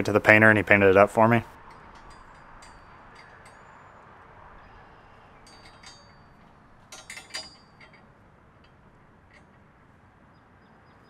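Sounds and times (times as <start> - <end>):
faint light clinks: 1.5 - 10.0.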